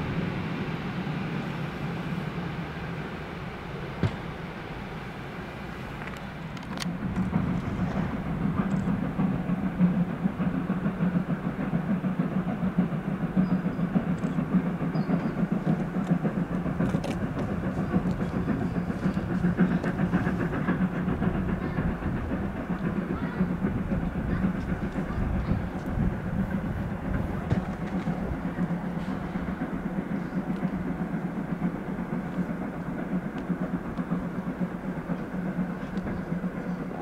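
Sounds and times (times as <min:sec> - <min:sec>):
train wheels rumbling on rails: 0:00.0 - 0:37.0
faint clicks: 0:08.6 - 0:09.0, 0:14.1 - 0:14.5.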